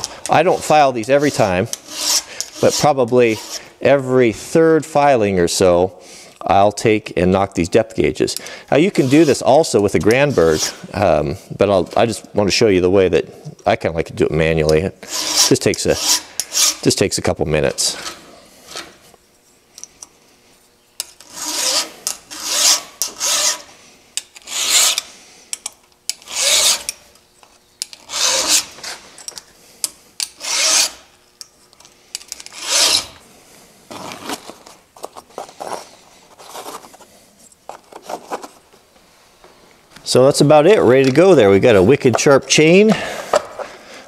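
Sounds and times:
file rasping on chainsaw chain: 0.2 - 3.7, 8.8 - 9.4, 15.0 - 16.9, 21.2 - 23.7, 24.4 - 25.1, 26.1 - 27.0, 28.0 - 28.8, 30.4 - 31.1, 32.5 - 33.2.

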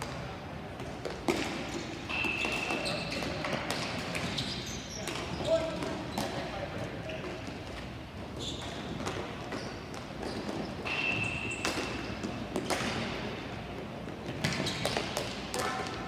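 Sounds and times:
hockey sticks and ball knocking: 0.8 - 6.5, 8.6 - 13.3, 14.2 - 16.0.

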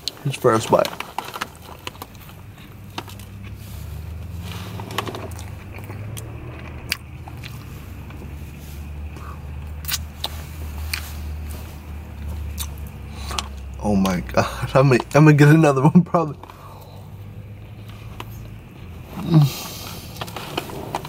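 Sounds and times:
man chewing: 1.5 - 13.8, 16.5 - 21.0.

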